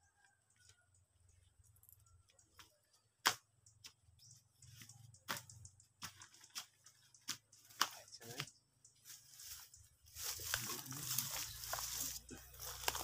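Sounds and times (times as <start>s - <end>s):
twigs snapping underfoot: 10.2s - 13.0s.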